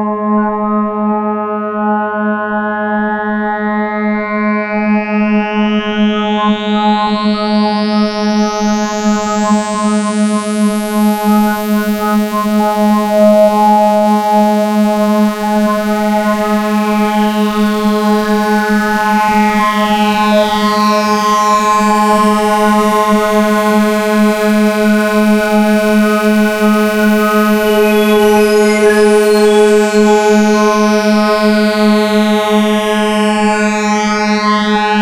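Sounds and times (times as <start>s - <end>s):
low synthesizer drone: 8.9s - 35.0s
high synthesizer sweep: 21.6s - 35.0s.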